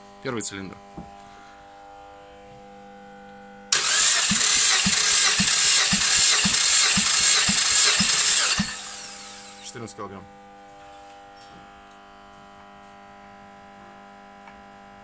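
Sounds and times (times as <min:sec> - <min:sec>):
engine cranking with rhythmic thumps: 0:03.7 - 0:09.7.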